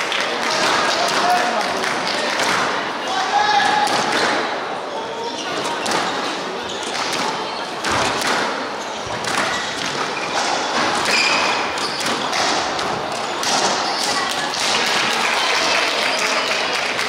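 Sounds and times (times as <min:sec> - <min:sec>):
squash ball struck by rackets: 0:06.9 - 0:14.1.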